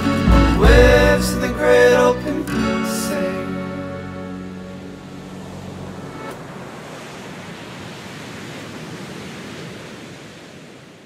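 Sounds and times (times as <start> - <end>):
music: 0.0 - 6.3.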